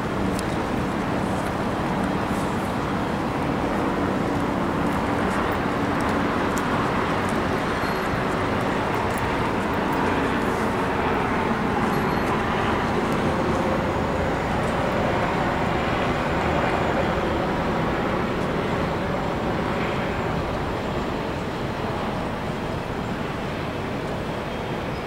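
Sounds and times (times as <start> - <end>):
city traffic: 0.0 - 25.0.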